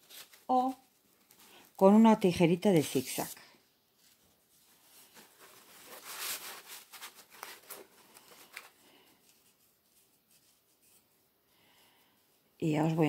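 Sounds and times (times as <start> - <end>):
fabric rustling: 2.7 - 11.4.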